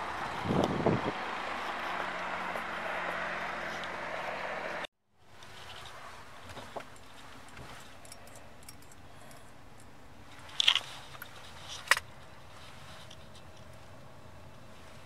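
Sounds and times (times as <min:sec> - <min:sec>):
tyres rumbling on road: 0:00.0 - 0:04.9
short rustle: 0:10.3 - 0:14.0.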